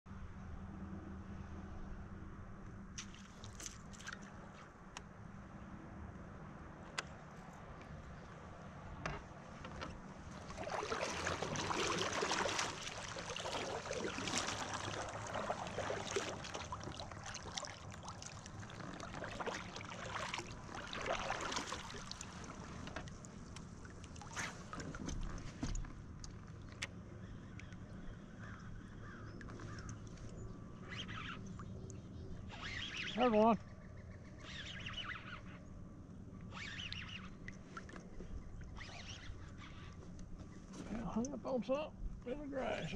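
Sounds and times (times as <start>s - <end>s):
paddle splashing water: 3.0s - 4.6s, 9.4s - 26.8s, 29.1s - 31.4s
water dripping: 10.4s - 24.3s.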